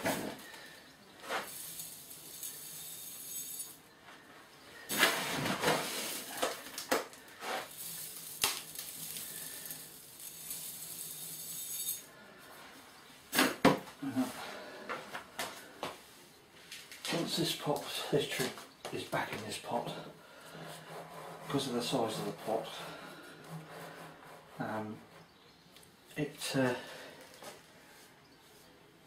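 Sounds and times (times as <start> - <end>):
grit pouring into a pot: 1.3 - 3.8, 5.9 - 12.1.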